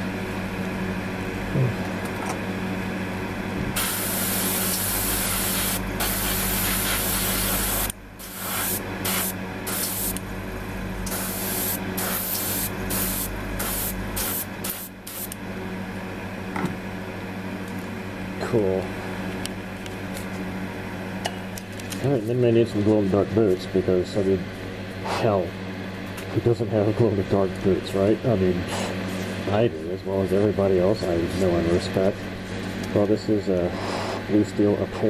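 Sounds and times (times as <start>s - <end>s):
steady low hum: 0.0s - 35.0s
airbrush spraying hiss: 3.8s - 10.2s, 11.1s - 15.3s.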